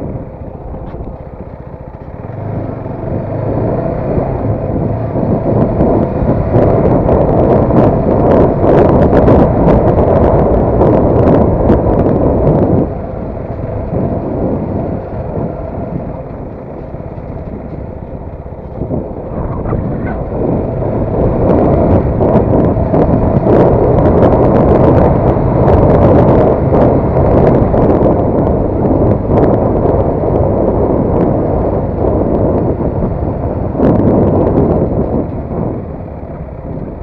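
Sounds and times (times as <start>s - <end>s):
motorcycle engine: 0.0s - 37.0s
wind rushing over microphone: 0.0s - 37.0s.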